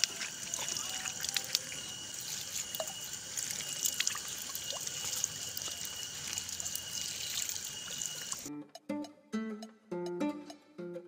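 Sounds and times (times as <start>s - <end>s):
drips and taps: 0.0s - 8.5s
water trickling and splashing: 0.0s - 8.5s.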